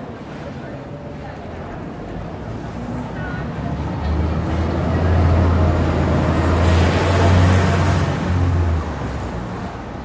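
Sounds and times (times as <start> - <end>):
vehicle passing by: 2.7 - 9.9.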